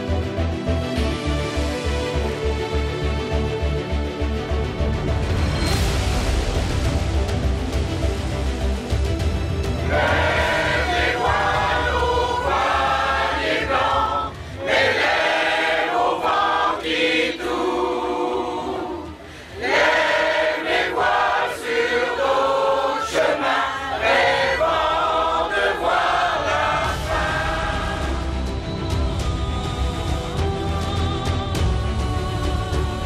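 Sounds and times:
mixed choir singing: 9.7 - 33.0.

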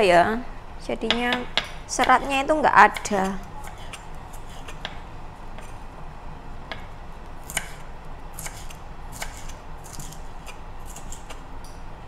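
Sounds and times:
knife slicing beans: 2.0 - 4.8, 7.4 - 11.4.

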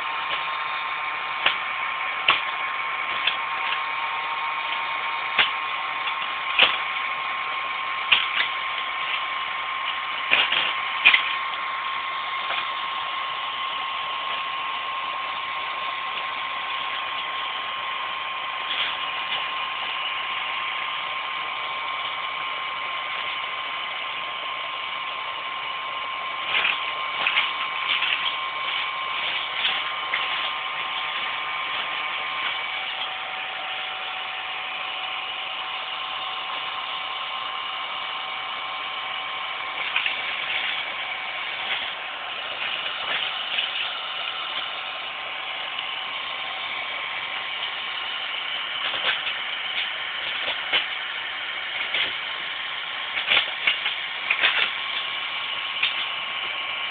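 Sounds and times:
heat gun blowing and whining: 0.0 - 56.9
sharp clicks and crackles: 1.4 - 3.9, 4.6 - 13.6, 26.4 - 33.1, 39.7 - 44.7, 47.5 - 56.9.

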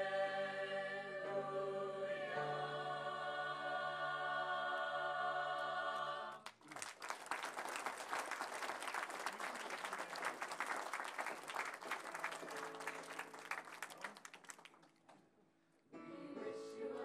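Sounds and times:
choir singing held chord: 0.0 - 6.4, 16.0 - 17.0
audience applauding: 6.3 - 15.2.

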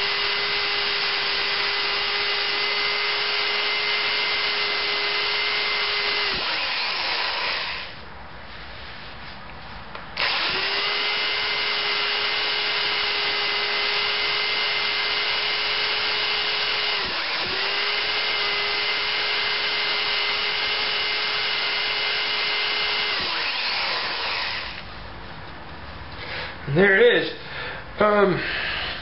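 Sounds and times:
electric drill whining: 0.0 - 8.0, 10.2 - 24.9.

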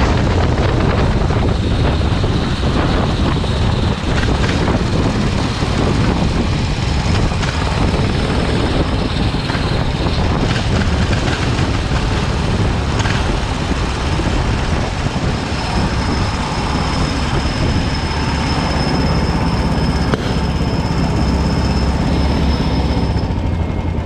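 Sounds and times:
kart engine drone: 0.0 - 24.0
thin high whine: 12.2 - 24.0.

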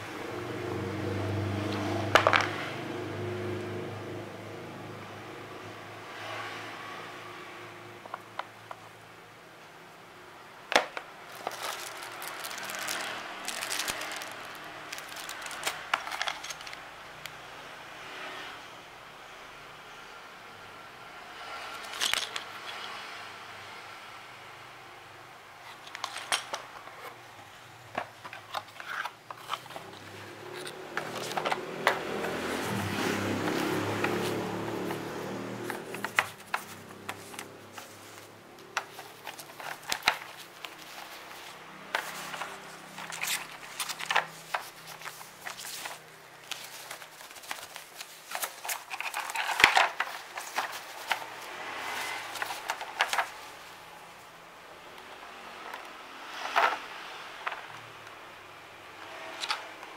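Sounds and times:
plastic wrapper rustling: 11.2 - 16.8, 35.6 - 53.6
plastic bag crinkling: 11.3 - 16.8, 35.5 - 53.5.

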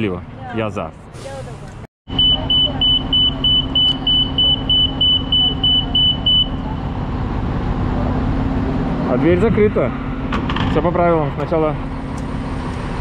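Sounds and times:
bus engine idling: 1.2 - 10.3
high electronic warning beeps: 2.1 - 6.6.

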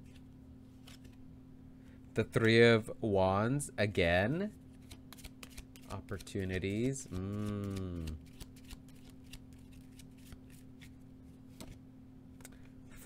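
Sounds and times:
cards shuffling clicks: 0.8 - 1.2, 4.8 - 11.8.

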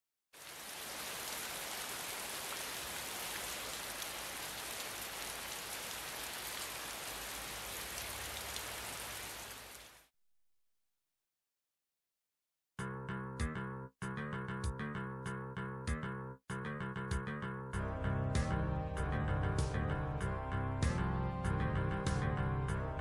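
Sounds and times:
steady rain hiss: 0.4 - 10.1
rain drop ticks: 1.1 - 10.0.

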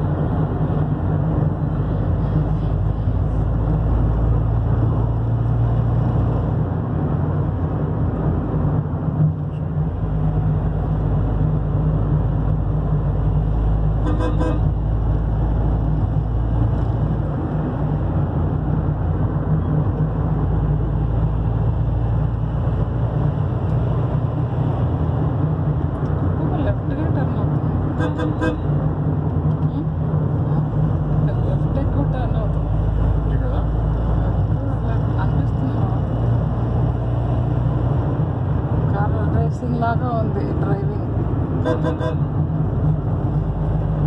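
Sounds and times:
car engine and road rumble: 0.0 - 44.0
vehicle horn toot: 14.0 - 14.8, 28.0 - 28.7, 41.6 - 42.3.

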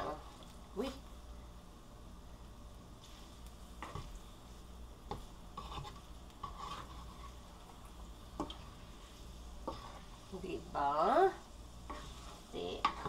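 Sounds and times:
pasta frying lightly: 0.0 - 13.0
spoon scraping a frying pan: 5.1 - 7.8, 8.4 - 11.2, 11.8 - 13.0.

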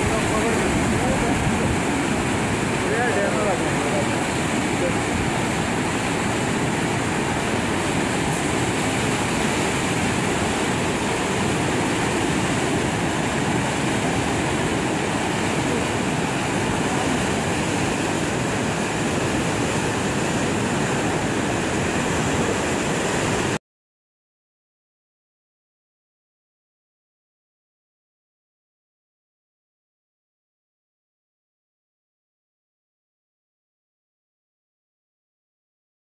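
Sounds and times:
river rushing: 0.0 - 23.6.

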